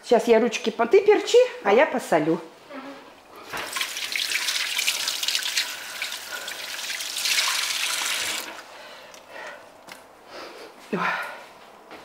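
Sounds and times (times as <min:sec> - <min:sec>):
hands washing under water: 0:03.4 - 0:08.7.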